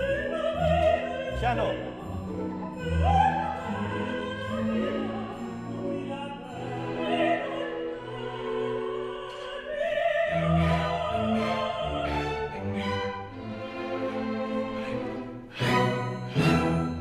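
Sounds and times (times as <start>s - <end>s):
orchestra playing string chords: 0.0s - 9.4s, 10.3s - 17.0s
woman singing opera: 0.0s - 13.3s.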